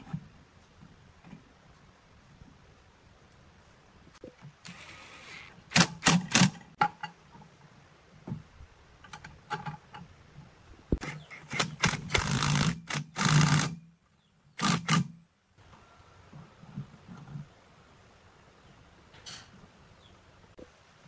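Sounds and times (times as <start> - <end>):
impact driver bursts: 11.0 - 13.8, 14.6 - 15.1.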